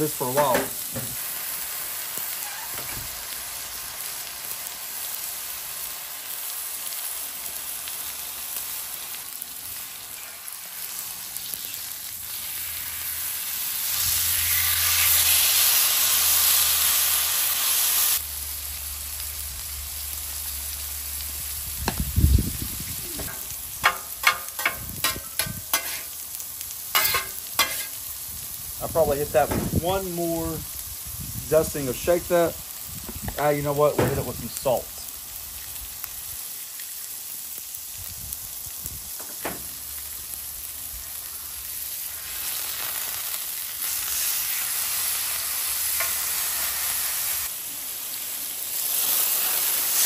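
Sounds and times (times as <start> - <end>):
steak sizzling on griddle: 0.0 - 50.0.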